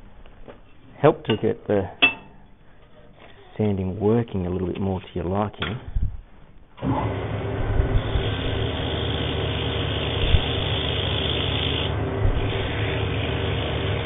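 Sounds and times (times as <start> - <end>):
lathe motor humming: 6.8 - 14.0
sandpaper hissing on spinning wood: 8.0 - 14.0.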